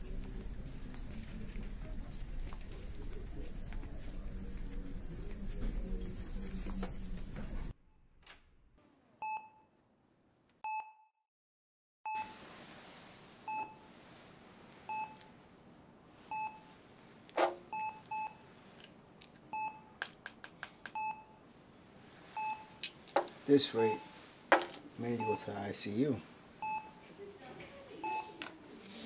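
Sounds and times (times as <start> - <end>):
patient monitor beeping: 12.1 - 12.4, 13.5 - 13.9, 14.9 - 15.3, 16.3 - 16.7, 17.4 - 18.4, 19.5 - 20.0, 21.0 - 21.4, 22.4 - 22.8, 23.6 - 24.2, 25.1 - 25.7, 26.6 - 27.1, 27.9 - 28.6.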